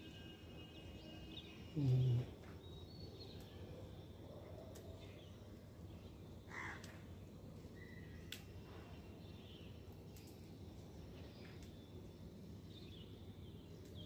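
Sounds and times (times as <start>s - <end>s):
man humming: 1.8s - 2.3s.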